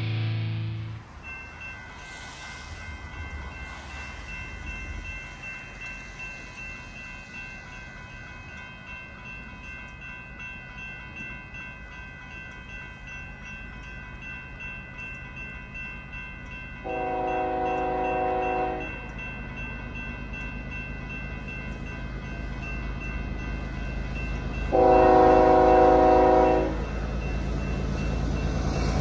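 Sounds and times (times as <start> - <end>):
freight train rumbling: 0.0 - 29.0
locomotive air horn blast: 16.8 - 18.9, 24.7 - 26.8.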